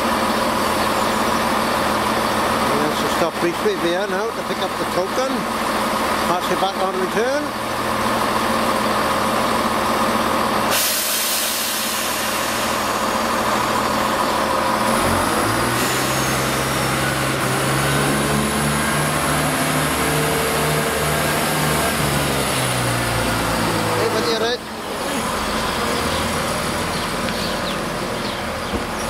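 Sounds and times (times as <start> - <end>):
train engine idling: 0.0 - 29.0
train engine pulsing: 0.0 - 29.0
loud hiss: 10.7 - 13.4, 15.7 - 17.8.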